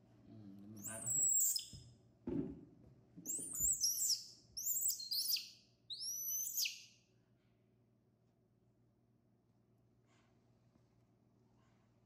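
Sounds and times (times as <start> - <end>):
baby monkey squealing: 0.8 - 1.7, 3.3 - 6.8.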